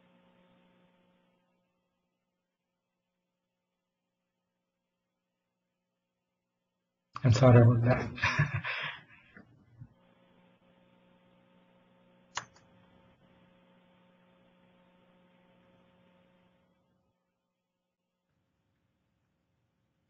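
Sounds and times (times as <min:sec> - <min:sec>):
faint electrical mains hum: 0:00.0 - 0:20.0
sharp click: 0:12.3 - 0:12.7.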